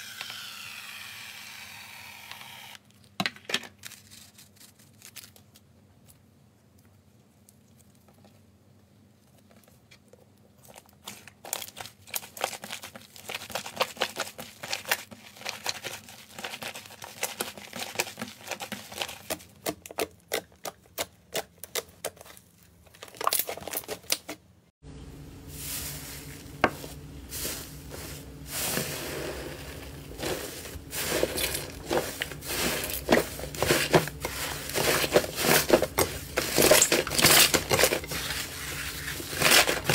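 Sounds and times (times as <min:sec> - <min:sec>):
slime squelching and crackling: 0:09.7 - 0:24.2.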